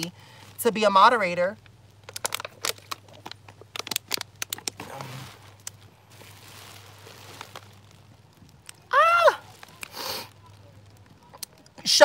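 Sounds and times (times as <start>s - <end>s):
plastic bottle crinkling and clicking: 1.6s - 11.9s
soft hiss: 2.7s - 12.0s.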